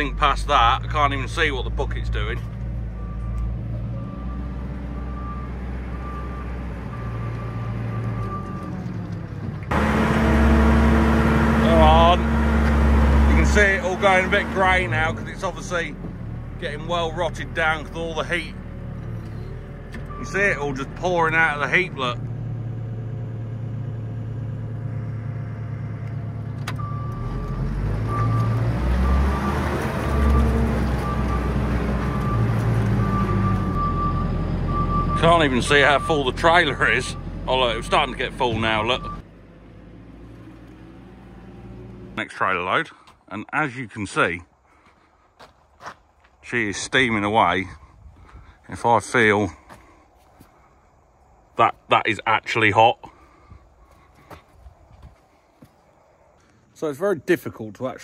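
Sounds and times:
diesel engine running: 0:00.0 - 0:43.2
reversing alarm beeping: 0:02.9 - 0:08.8, 0:26.8 - 0:27.4, 0:28.0 - 0:39.2.

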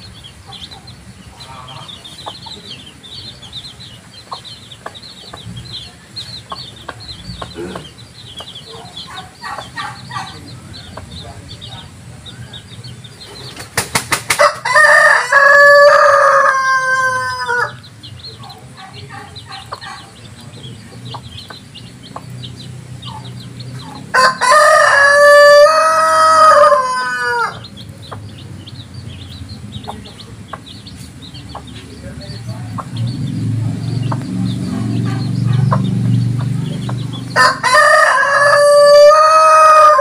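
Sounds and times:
chicks peeping: 0:00.0 - 0:40.0
rooster crowing: 0:14.4 - 0:17.9, 0:24.1 - 0:27.7, 0:37.4 - 0:40.0.

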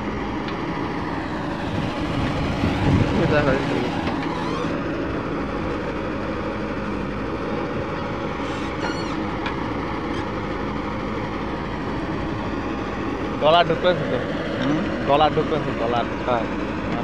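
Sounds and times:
diesel engine running: 0:00.0 - 0:17.0
backhoe digging soil: 0:02.0 - 0:05.0, 0:08.1 - 0:10.5.

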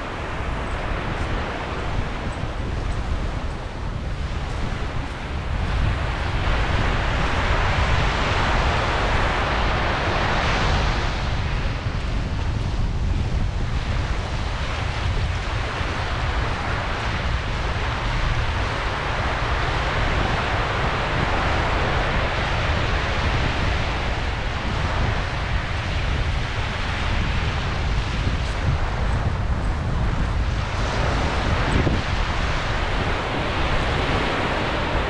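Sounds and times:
surf washing on beach: 0:00.0 - 0:35.0
wind buffeting microphone: 0:00.0 - 0:35.0.

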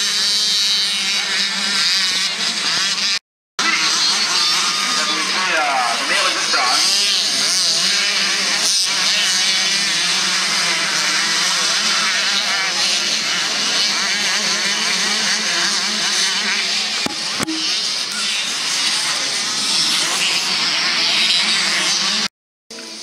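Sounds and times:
motocross bike engines revving: 0:00.0 - 0:22.3
sharp knocks: 0:17.1 - 0:17.8.

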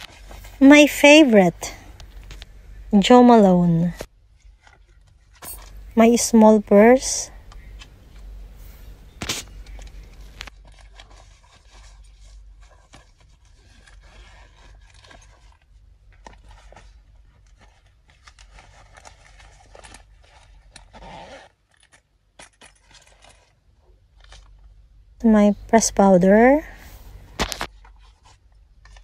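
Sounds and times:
fabric rustling and scraping: 0:00.0 - 0:00.6, 0:07.8 - 0:24.7.

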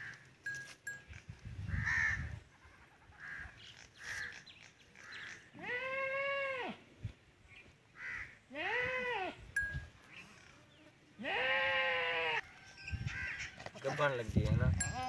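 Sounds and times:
goat bleating: 0:05.6 - 0:06.8, 0:08.5 - 0:09.4, 0:11.2 - 0:12.4.

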